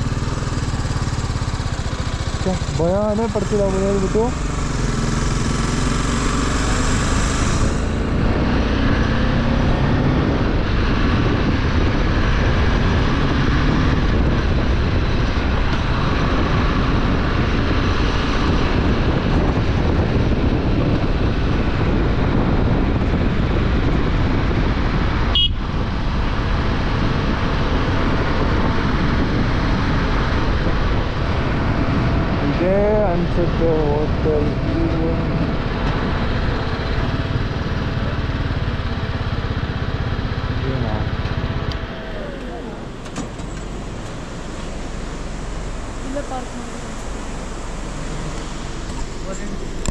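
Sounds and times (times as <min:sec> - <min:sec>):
motorcycle engine running: 0:00.0 - 0:49.9
rushing noise: 0:01.7 - 0:10.5, 0:25.7 - 0:49.9.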